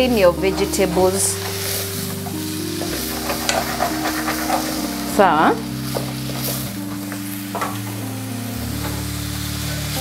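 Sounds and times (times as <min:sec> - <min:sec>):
vegetables sizzling in hot oil: 0:00.0 - 0:10.0
wooden spoon scraping a pot: 0:01.2 - 0:05.3.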